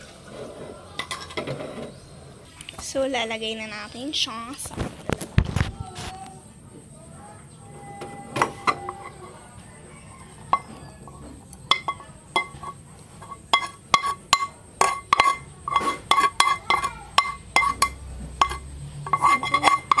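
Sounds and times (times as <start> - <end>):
utensil clinking against bowl and pan: 10.4 - 20.0.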